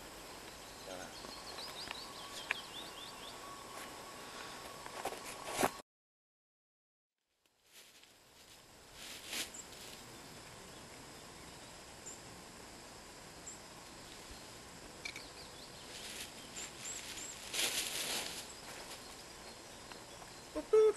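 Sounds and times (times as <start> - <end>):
faint steady hiss: 0.0 - 5.7, 7.4 - 20.9
footsteps in dry leaves: 7.6 - 10.0, 15.7 - 19.3
high bird chirps: 15.0 - 17.4.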